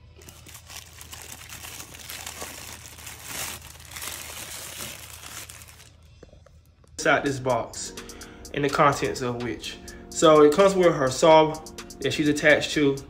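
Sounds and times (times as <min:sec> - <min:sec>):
plastic wrapping crinkling: 0:00.0 - 0:07.0.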